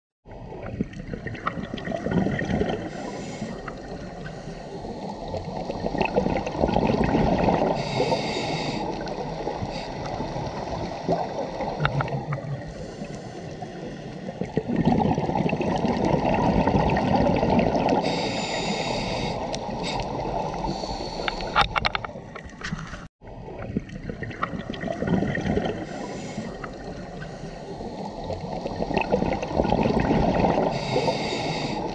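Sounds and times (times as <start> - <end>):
bubbling rumble of exhaled bubbles: 0.3 - 4.3, 5.2 - 8.3, 8.9 - 12.9, 13.6 - 18.0, 23.4 - 27.2, 28.2 - 31.2
regulator inhale hiss: 2.9 - 5.2, 7.7 - 9.1, 9.7 - 10.2, 12.7 - 14.3, 18.0 - 21.7, 25.8 - 28.2, 30.7 - 31.9.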